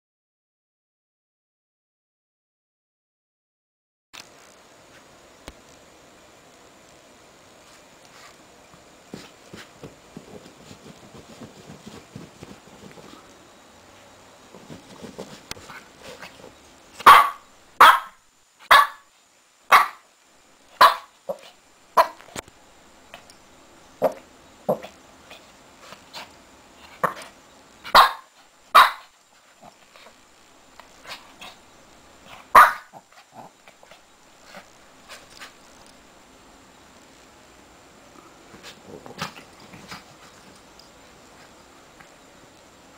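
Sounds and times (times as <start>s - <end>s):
puppy barking: 17.0s - 19.1s, 19.7s - 20.0s, 20.8s - 22.2s, 27.9s - 29.1s, 32.3s - 33.1s.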